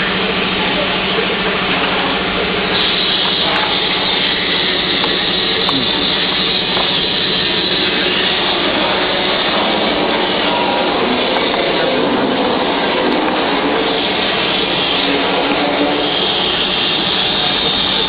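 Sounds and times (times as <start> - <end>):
machine whirring: 0.0 - 18.0.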